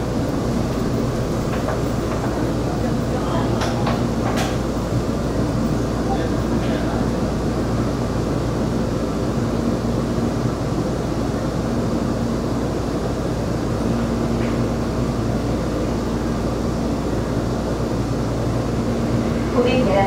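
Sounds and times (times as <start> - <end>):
train wheels rumbling on rail: 0.0 - 20.0.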